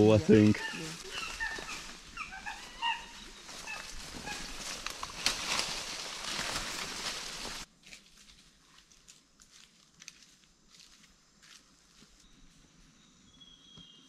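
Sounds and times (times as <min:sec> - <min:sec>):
footsteps in dry leaves: 0:00.4 - 0:12.2
faint high whistle: 0:13.0 - 0:14.0.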